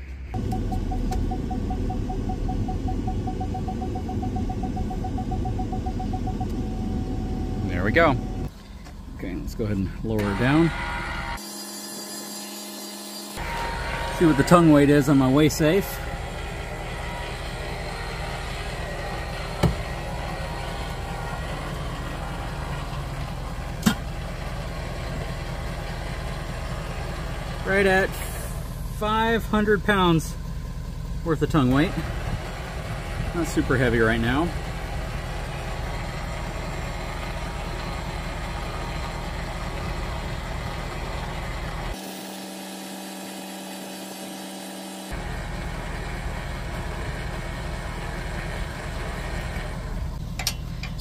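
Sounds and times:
truck engine running: 0:00.0 - 0:11.4, 0:13.4 - 0:51.0
parking sensor beeping: 0:00.3 - 0:08.5.

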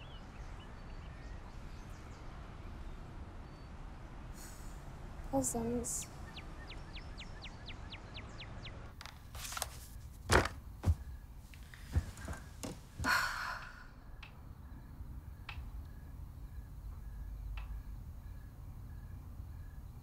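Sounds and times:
bedding rustling: 0:09.1 - 0:13.2
sharp thuds: 0:09.7 - 0:13.2
soft knocks: 0:10.3 - 0:11.2
woman sighing: 0:13.0 - 0:14.0.

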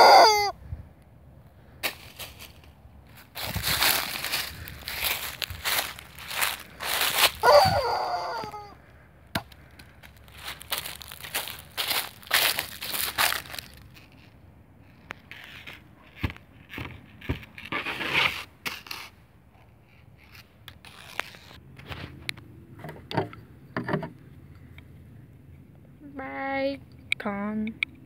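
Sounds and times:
footsteps crunching dry leaves: 0:01.8 - 0:08.7, 0:09.9 - 0:14.4
objects scraping and knocking: 0:20.2 - 0:24.2.

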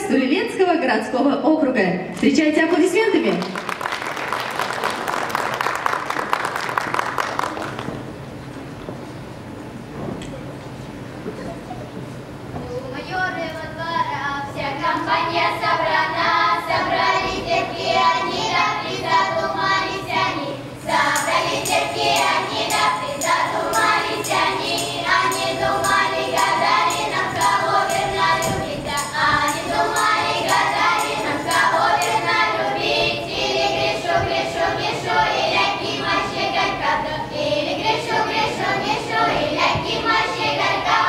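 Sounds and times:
children singing together: 0:14.5 - 0:41.0
tambourine jingles: 0:20.8 - 0:32.6.

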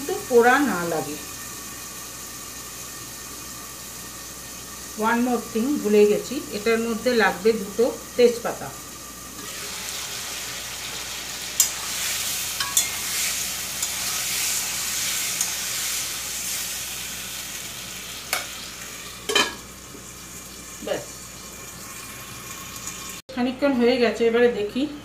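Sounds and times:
tomatoes sizzling in oil: 0:00.0 - 0:23.3
spatula clinking against pan: 0:12.6 - 0:13.0.

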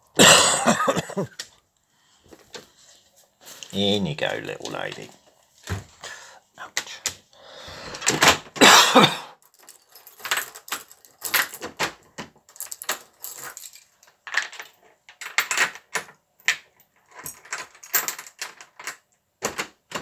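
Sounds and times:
keys jangling in a door lock: 0:09.4 - 0:20.0.

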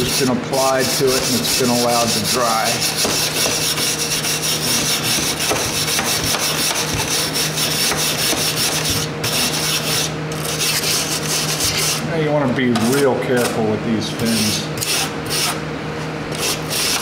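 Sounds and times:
scratchy scrubbing on metal fins: 0:00.0 - 0:12.0.

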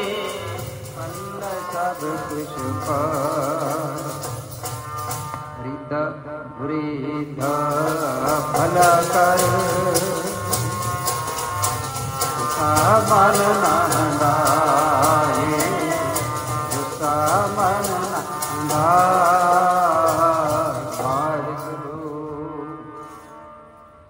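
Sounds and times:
devotional hymn singing: 0:00.0 - 0:04.2, 0:12.6 - 0:22.8
instrumental accompaniment: 0:00.0 - 0:24.0.

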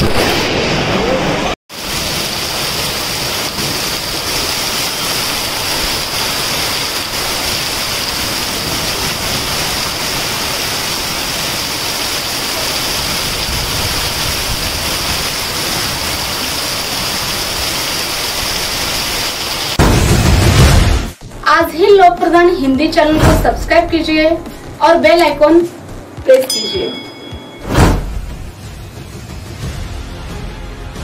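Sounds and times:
heavy rain on a street: 0:00.9 - 0:20.6.

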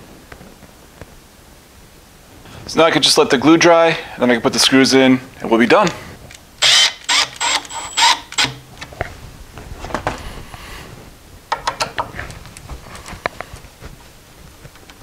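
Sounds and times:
screwdriver turning screws clicking: 0:06.6 - 0:08.9.

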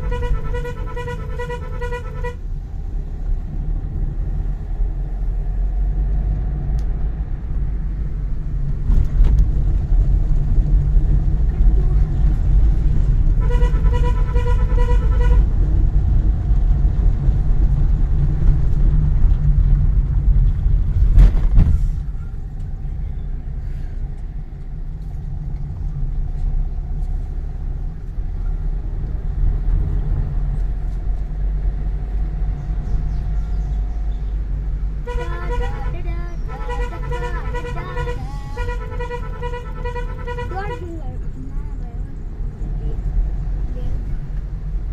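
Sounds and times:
car horn beeps: 0:00.0 - 0:02.4, 0:13.4 - 0:15.6, 0:35.0 - 0:40.9
car cabin engine and tyre rumble: 0:00.0 - 0:44.9.

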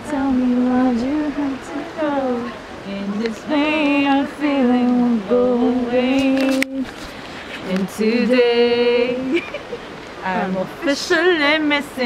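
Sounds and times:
woman singing slowly: 0:00.0 - 0:06.9, 0:07.6 - 0:09.4.

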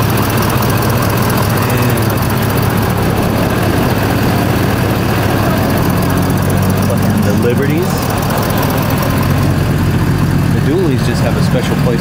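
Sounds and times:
truck engine idling: 0:00.0 - 0:12.0.

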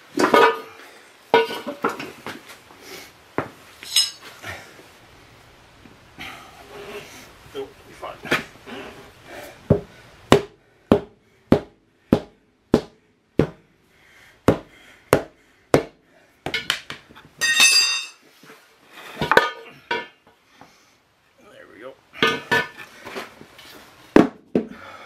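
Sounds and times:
ringing metal clang: 0:03.8 - 0:04.2, 0:17.4 - 0:18.2.

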